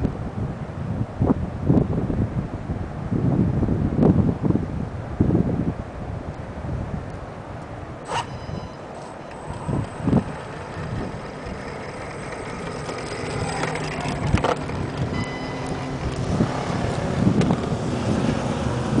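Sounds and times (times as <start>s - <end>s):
tyres on gravel: 8.1s - 18.2s
electric motor whine: 8.1s - 19.0s.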